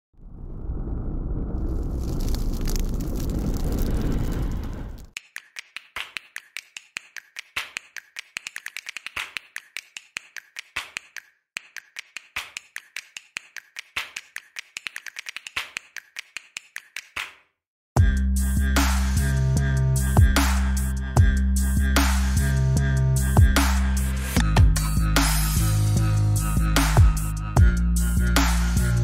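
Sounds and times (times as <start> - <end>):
loud music with heavy beat: 18.0 - 29.0.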